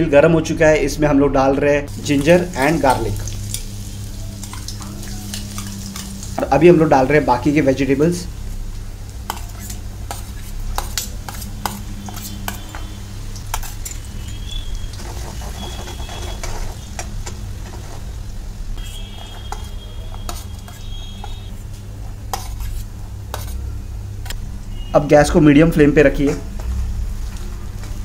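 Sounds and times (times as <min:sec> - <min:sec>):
garlic and ginger sizzling: 0:01.9 - 0:28.0
spatula scraping and clinking pan: 0:09.3 - 0:14.1, 0:18.8 - 0:21.5, 0:22.3 - 0:23.6.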